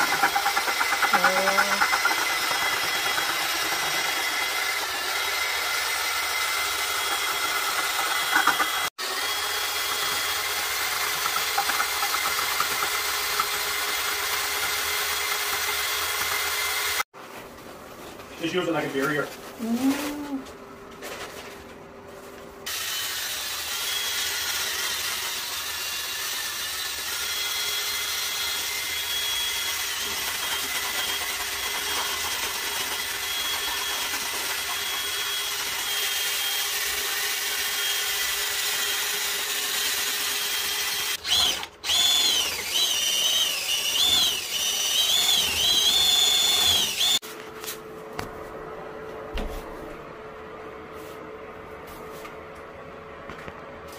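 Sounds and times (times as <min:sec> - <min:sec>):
paddle mixer churning cement: 0:00.0 - 0:17.0, 0:24.2 - 0:47.2
power drill motor whine: 0:00.0 - 0:17.0, 0:22.7 - 0:47.2.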